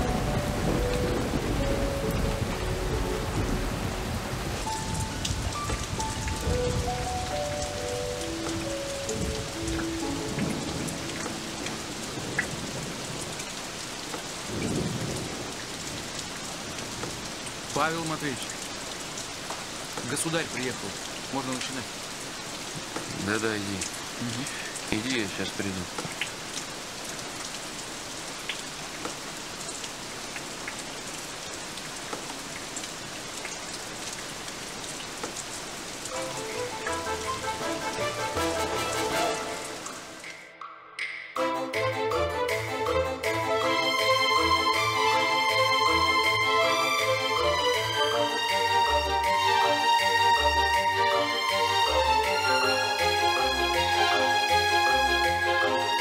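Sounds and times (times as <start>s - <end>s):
thunder rumbles: 0.0s - 7.3s, 8.6s - 17.4s
music with sustained notes and bass: 0.0s - 12.4s, 36.1s - 56.0s
steady rain: 0.0s - 40.6s, 41.6s - 56.0s.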